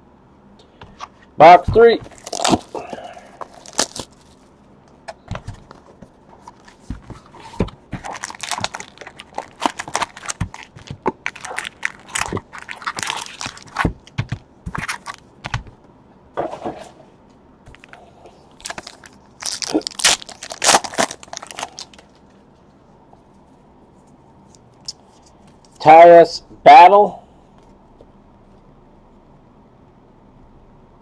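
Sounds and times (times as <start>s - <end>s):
cardboard and wrapper crinkling: 1.7s - 4.5s, 5.3s - 15.7s, 17.7s - 22.2s.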